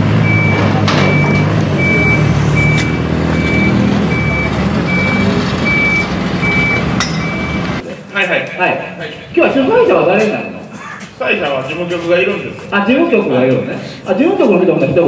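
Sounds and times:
engine idling: 0.0s - 7.8s
truck reversing alarm beeping: 0.0s - 7.8s.

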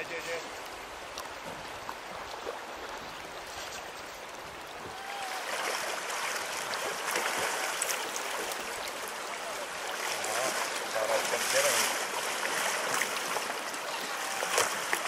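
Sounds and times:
river water rushing over riffle: 0.0s - 15.0s
fish splashing: 4.9s - 15.0s.

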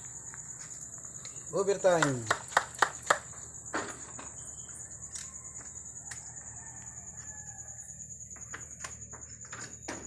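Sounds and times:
crickets trilling: 0.0s - 10.0s
faint rooster crow: 5.1s - 8.3s.

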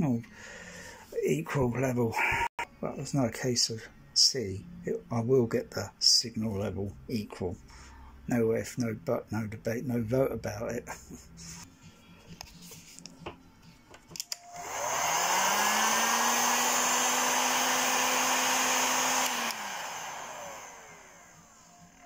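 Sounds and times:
heat gun fan whine: 14.1s - 22.0s.

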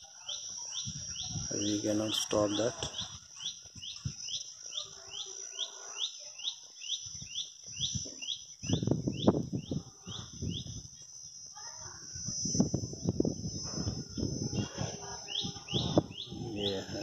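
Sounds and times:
bird chirping rhythmically: 0.0s - 11.5s, 12.4s - 17.0s.

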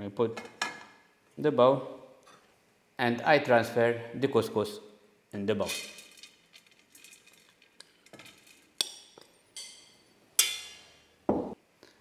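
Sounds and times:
spoon clinking on glass: 8.8s - 10.8s.

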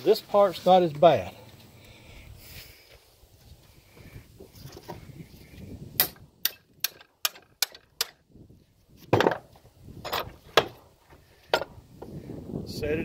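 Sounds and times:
sharp metal clicks: 6.0s - 8.2s.

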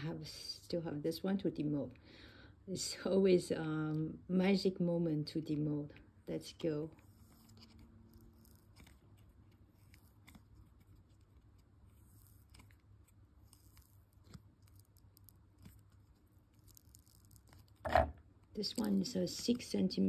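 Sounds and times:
fingers handling silicone mold: 7.0s - 19.4s.

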